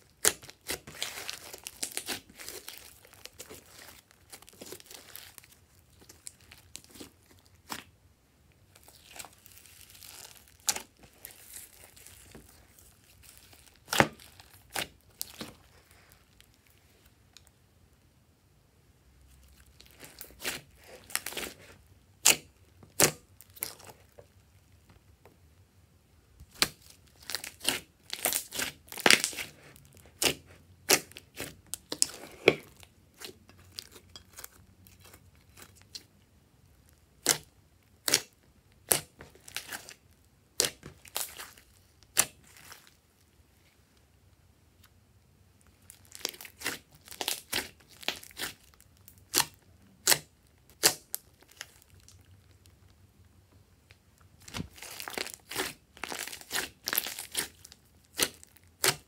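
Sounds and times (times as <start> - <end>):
hands squeezing slime: 0.0 - 7.9, 8.7 - 16.5, 19.6 - 24.1, 45.8 - 52.7, 54.4 - 59.0.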